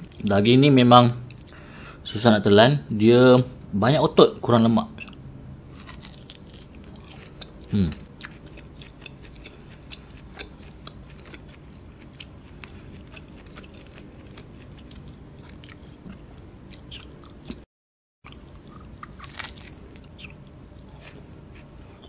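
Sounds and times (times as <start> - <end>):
person chewing meat: 5.0 - 17.6, 18.2 - 22.0.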